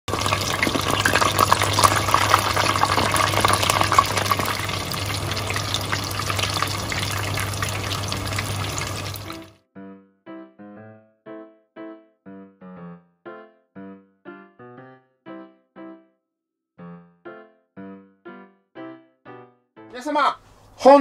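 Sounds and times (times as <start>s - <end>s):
chicken deep-frying in oil: 0.0s - 9.6s
piano music: 0.1s - 20.4s.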